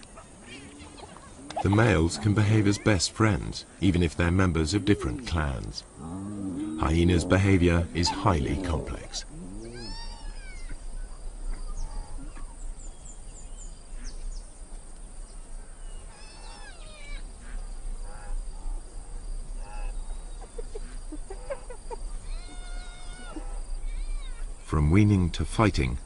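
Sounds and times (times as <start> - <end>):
hyenas calling: 4.8 - 12.6, 20.8 - 24.5.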